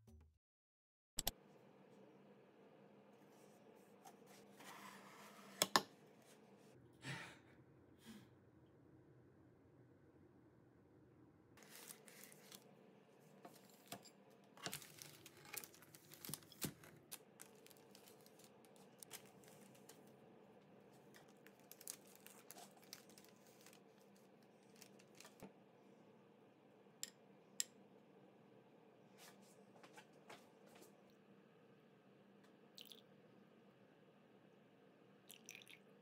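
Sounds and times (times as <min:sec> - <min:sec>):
wrapping sheets crinkling: 0:11.6 - 0:12.7, 0:14.6 - 0:20.2, 0:20.8 - 0:25.4.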